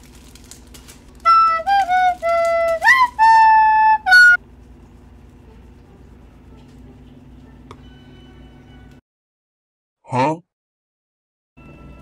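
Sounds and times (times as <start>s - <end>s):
flute-like melody: 1.2s - 4.4s.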